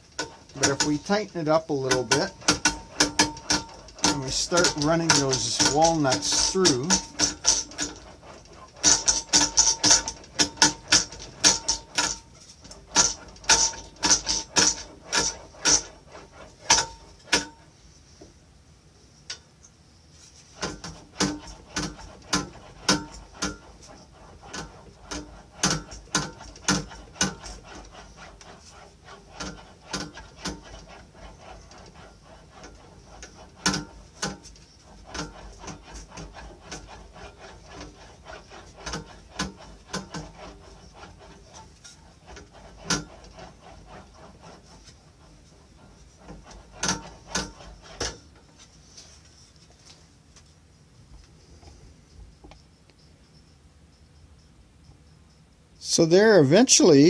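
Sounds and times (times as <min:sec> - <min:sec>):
metal panel rolling through wheel: 0:00.2 - 0:17.3.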